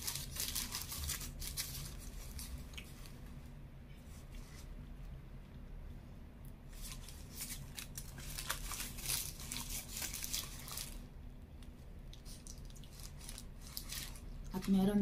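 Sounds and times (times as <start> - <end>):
paper wrapper crinkling and tearing: 0.0 - 3.1, 6.7 - 11.1, 12.1 - 15.0.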